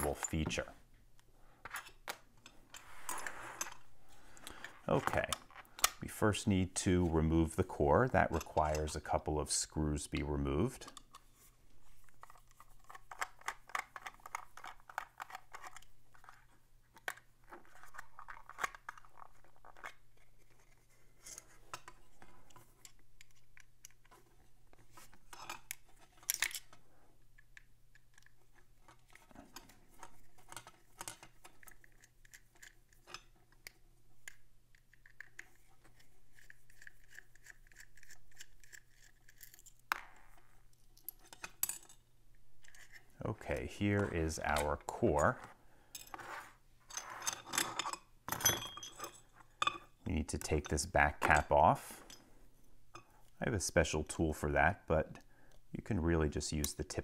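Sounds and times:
metal scraping: 0:02.5 - 0:05.6.

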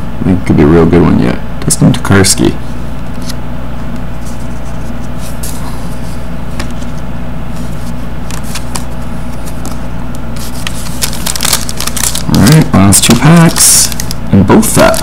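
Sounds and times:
steady low hum: 0:00.0 - 0:15.0
trading cards rustling: 0:04.2 - 0:15.0.

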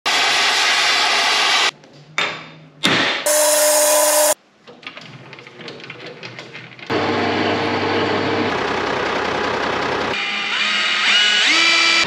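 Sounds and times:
loud harsh metalworking noise: 0:03.2 - 0:04.4.

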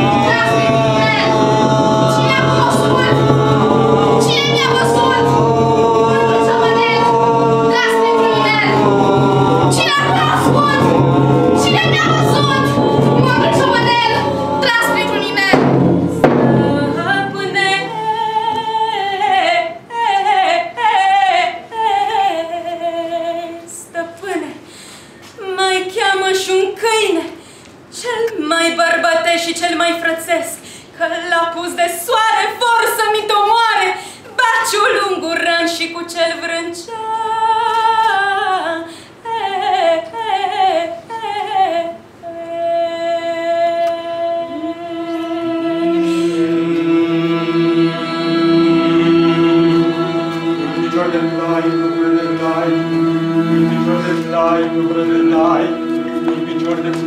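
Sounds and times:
woman singing solo: 0:00.0 - 0:24.7
woman singing unaccompanied: 0:00.0 - 0:24.7, 0:25.3 - 0:57.0
sharp knock: 0:08.6 - 0:18.7
breaths between phrases: 0:24.6 - 0:25.3.

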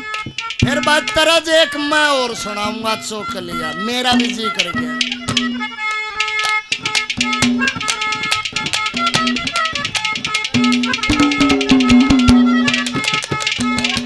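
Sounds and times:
hand drum fast rhythm: 0:08.6 - 0:14.0
melody instrument long notes: 0:10.5 - 0:13.0.

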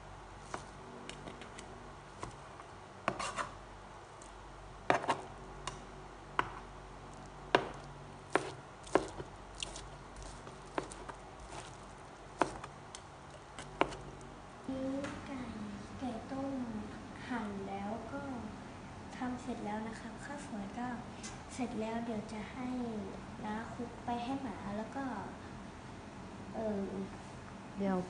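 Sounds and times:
knife chopping on board: 0:03.1 - 0:03.5, 0:04.9 - 0:05.2, 0:06.4 - 0:06.6, 0:07.5 - 0:11.7, 0:12.4 - 0:12.7, 0:13.7 - 0:14.0.

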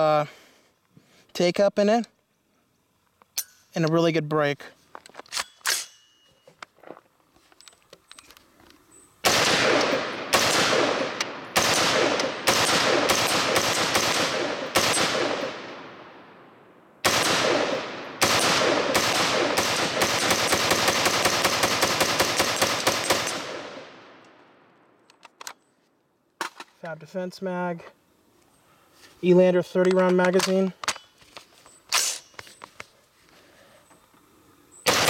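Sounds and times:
rifle shots echoing: 0:09.2 - 0:24.7.

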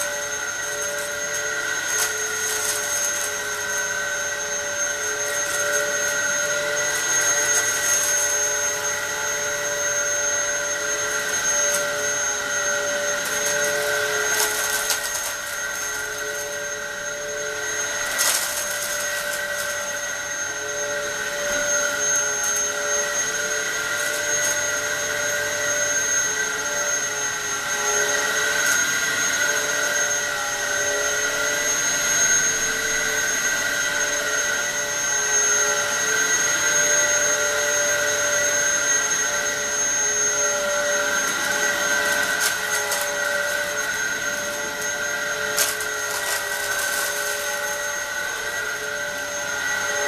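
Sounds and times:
vacuum cleaner motor whine: 0:00.0 - 0:50.0
debris clicking in vacuum: 0:00.9 - 0:03.8, 0:13.2 - 0:16.0, 0:18.0 - 0:19.9, 0:41.3 - 0:44.1, 0:45.5 - 0:48.0.

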